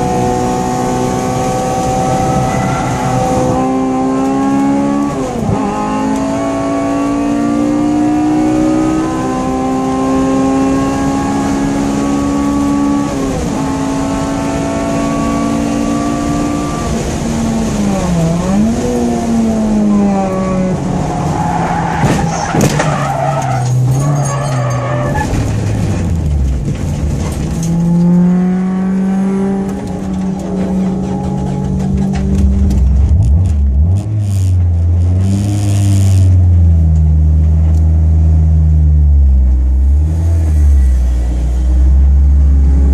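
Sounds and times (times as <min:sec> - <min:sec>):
car engine revving: 0:00.0 - 0:42.9
tyre squeal: 0:02.1 - 0:03.6, 0:21.1 - 0:25.4.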